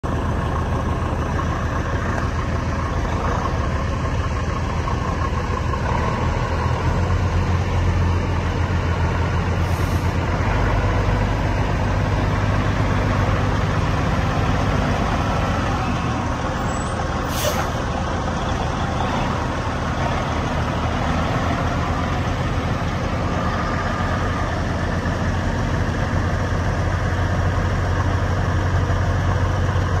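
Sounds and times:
diesel truck engine running: 0.0s - 30.0s
air brake hiss: 9.6s - 10.2s, 17.2s - 17.8s.

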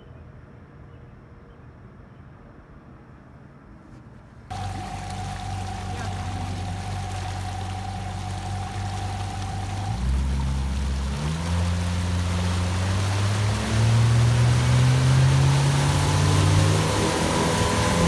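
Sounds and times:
outboard motor running: 4.5s - 18.0s
water rushing and churning: 4.5s - 18.0s.

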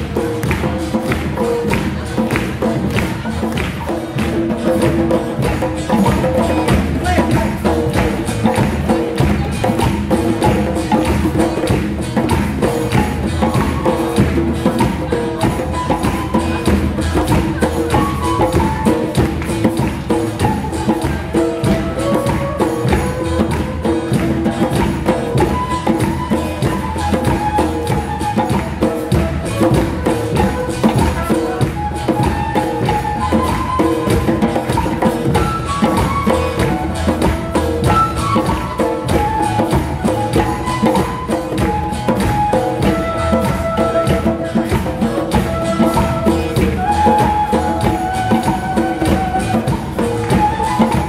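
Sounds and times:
hand drums playing rhythm: 0.0s - 51.0s
large drum struck with mallets: 0.0s - 51.0s.

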